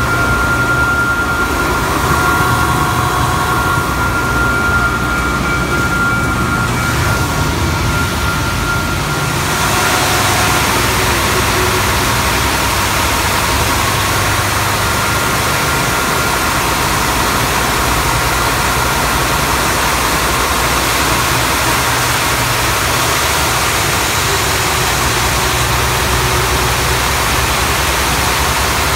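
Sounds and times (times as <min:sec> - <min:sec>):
belt sander humming and hissing: 0:00.0 - 0:16.3.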